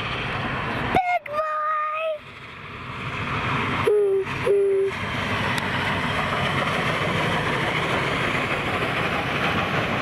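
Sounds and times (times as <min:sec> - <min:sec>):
steam train rumbling and hissing: 0:00.0 - 0:10.0
train whistle toots: 0:03.8 - 0:05.0.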